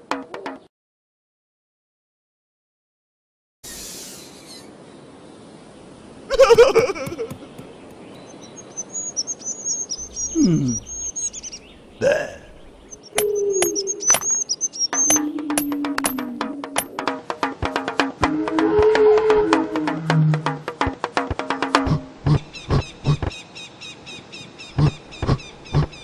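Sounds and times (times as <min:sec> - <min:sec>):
birds chirping: 0:03.6 - 0:17.8, 0:19.8 - 0:26.0
wordless vocal sounds: 0:10.3 - 0:11.0, 0:12.0 - 0:12.7.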